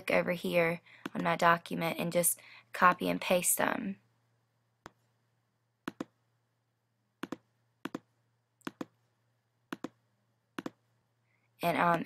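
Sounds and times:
computer mouse clicks: 5.8s - 6.2s, 7.2s - 9.0s, 9.7s - 10.0s, 10.6s - 10.8s.

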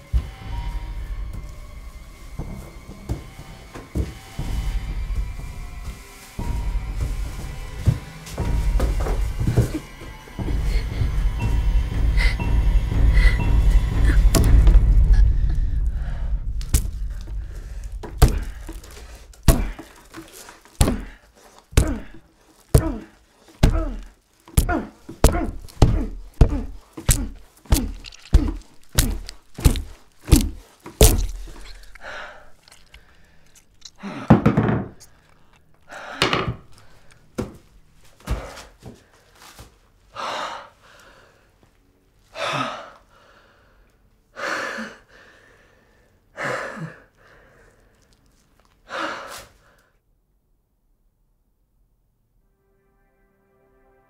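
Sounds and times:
hammer blows: 0.0s - 21.1s
man breathing heavily: 6.8s - 37.5s, 38.2s - 41.7s, 42.3s - 48.2s, 48.8s - 50.0s.

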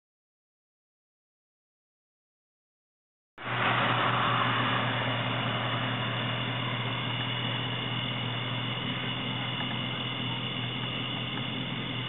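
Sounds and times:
truck engine idling: 3.4s - 12.0s.

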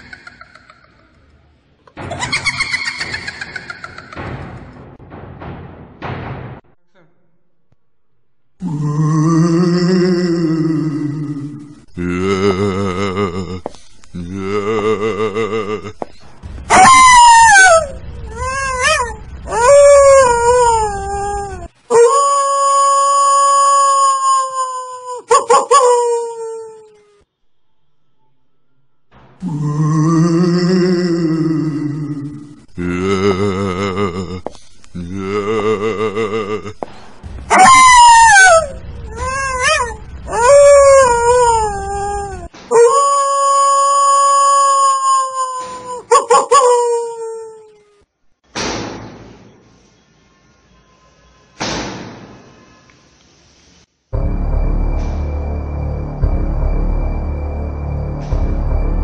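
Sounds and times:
dog howling: 16.7s - 24.0s, 37.5s - 45.2s
low rumble: 38.6s - 42.5s, 54.2s - 59.0s.

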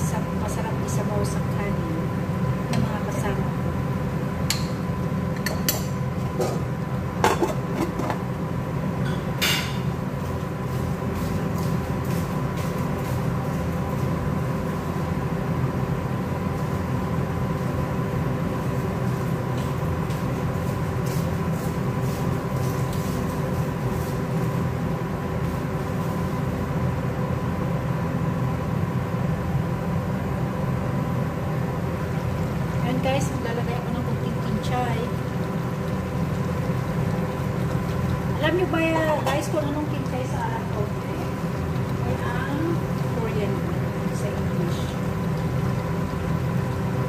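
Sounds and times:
metal pot lid clattering: 7.2s - 8.2s
motor hum: 29.3s - 47.0s.

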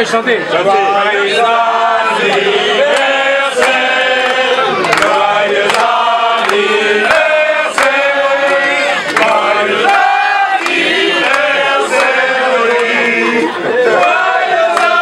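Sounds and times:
men singing in chorus: 0.6s - 15.0s
hand claps: 2.2s - 13.2s, 14.6s - 15.0s.

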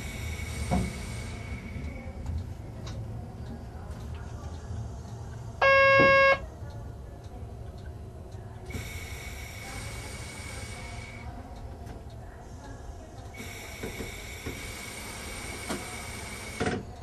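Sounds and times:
train cab rumble: 0.0s - 17.0s
loud electronic beep: 5.6s - 6.4s.

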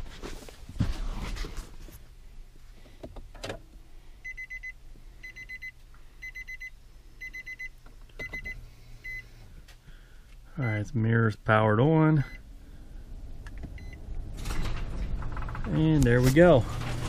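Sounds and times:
car warning chime beeps: 4.2s - 9.3s, 10.6s - 10.9s, 12.2s - 12.5s, 13.8s - 14.0s.

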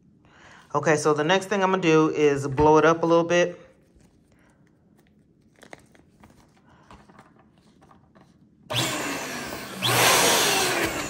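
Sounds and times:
plastic balloon crinkling: 3.7s - 8.5s
electric balloon inflator rushing: 8.7s - 11.0s.

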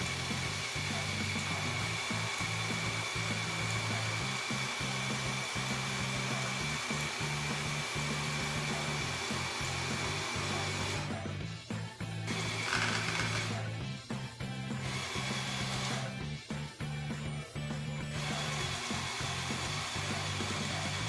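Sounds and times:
electric motors whirring: 0.0s - 11.3s, 12.3s - 13.8s, 14.7s - 16.2s, 18.1s - 21.0s.

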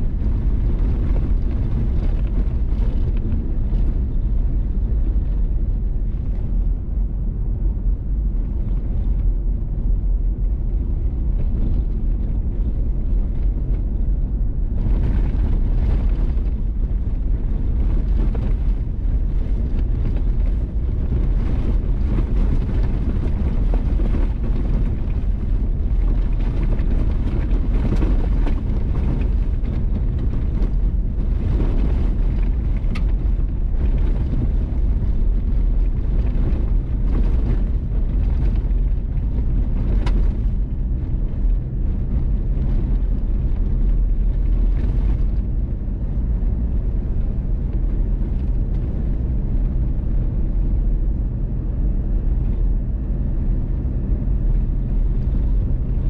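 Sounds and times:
wind buffeting microphone: 0.0s - 56.0s
tyres rumbling on gravel: 9.3s - 49.7s.

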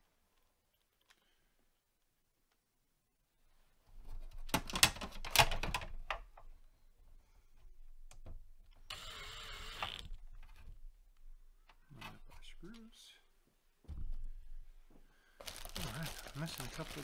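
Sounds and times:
drill driver clicking and whirring: 8.9s - 10.1s.

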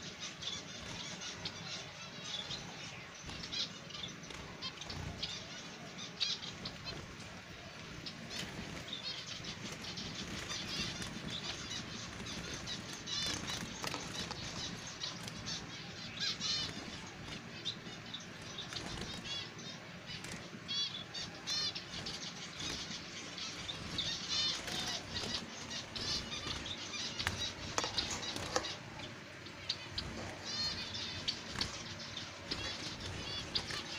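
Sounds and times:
wings flapping: 8.3s - 15.6s, 18.5s - 19.4s, 21.5s - 29.0s, 29.9s - 33.9s.

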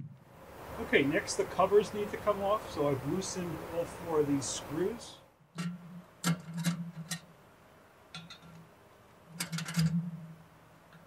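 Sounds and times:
light metal clicks and knocks: 5.6s - 7.3s, 8.1s - 8.6s, 9.3s - 10.1s.

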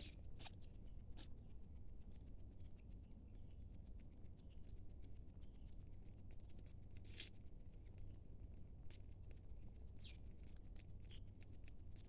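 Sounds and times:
insect chirping: 0.0s - 1.3s
ducklings pecking at grains: 3.3s - 12.0s.

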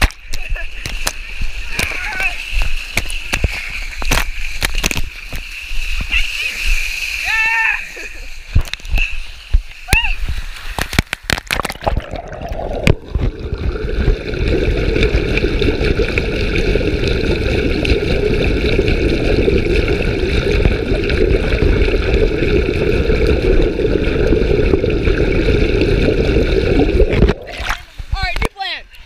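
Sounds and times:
underwater rushing and bubbling: 8.0s - 28.5s.

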